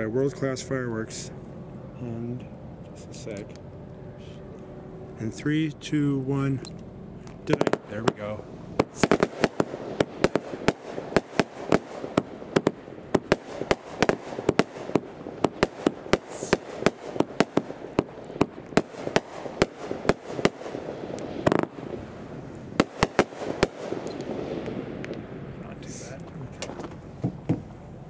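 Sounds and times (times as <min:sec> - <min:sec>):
firework launch reports: 0:00.0 - 0:03.6, 0:05.2 - 0:06.7, 0:07.3 - 0:27.1
loud firework burst: 0:06.3 - 0:26.2
firework hiss: 0:07.4 - 0:26.2.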